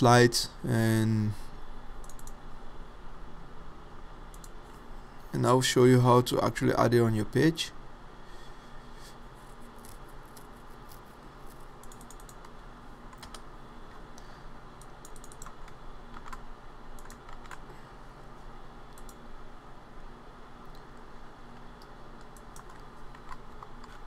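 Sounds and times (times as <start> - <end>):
typing on computer keyboard: 2.0 - 2.4, 11.8 - 12.5, 13.1 - 13.4, 15.0 - 16.4, 17.0 - 17.6, 22.2 - 24.0.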